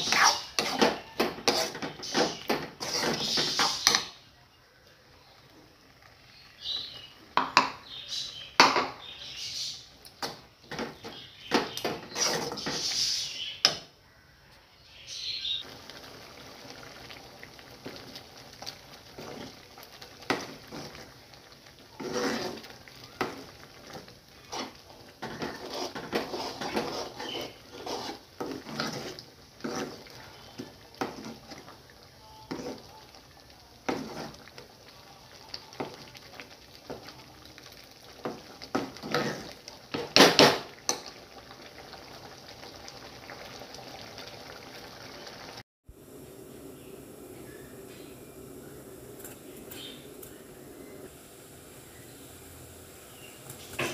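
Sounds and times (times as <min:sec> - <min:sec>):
ladle scraping and tapping pan: 0:00.0 - 0:04.2, 0:10.2 - 0:13.0, 0:22.0 - 0:23.4, 0:24.5 - 0:31.7, 0:33.9 - 0:34.4, 0:53.5 - 0:53.9.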